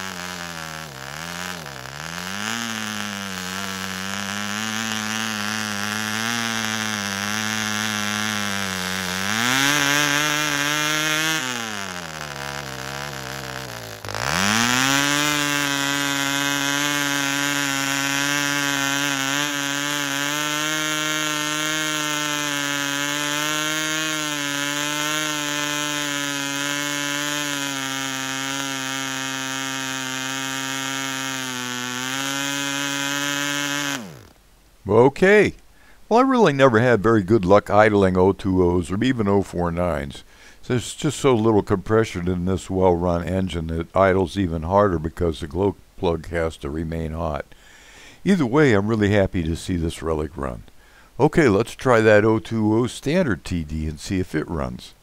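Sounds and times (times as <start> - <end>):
model engine buzzing: 0.0 - 34.4.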